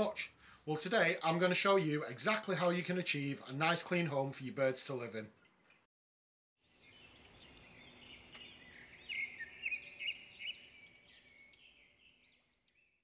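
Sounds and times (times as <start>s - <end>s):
small birds chirping: 6.6s - 13.0s.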